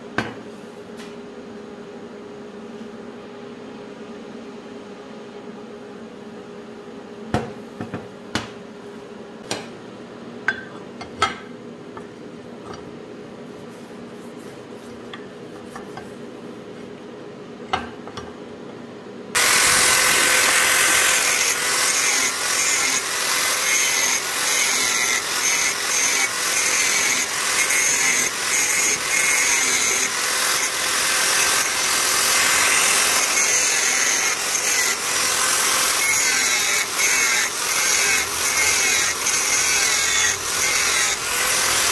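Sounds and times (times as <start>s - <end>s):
angle grinder grinding metal: 19.4s - 41.9s.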